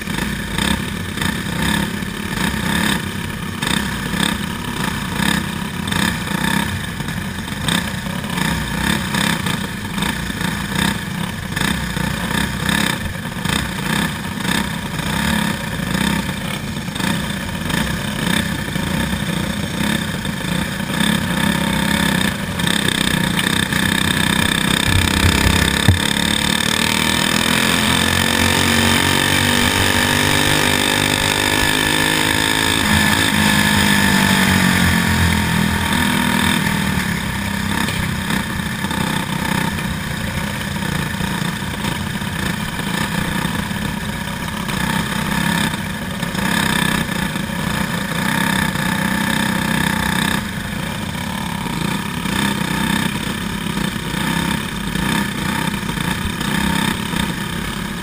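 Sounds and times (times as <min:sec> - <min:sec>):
kart engine running hard: 0:00.0 - 0:58.0.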